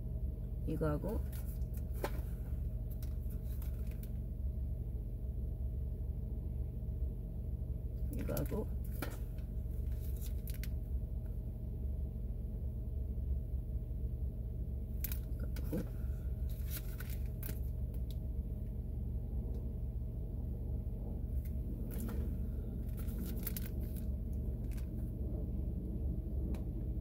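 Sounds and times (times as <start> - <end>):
car interior hum: 0.0 - 27.0
plastic wrapping crinkling: 2.9 - 4.2, 8.2 - 10.8, 16.4 - 18.2, 21.8 - 25.0.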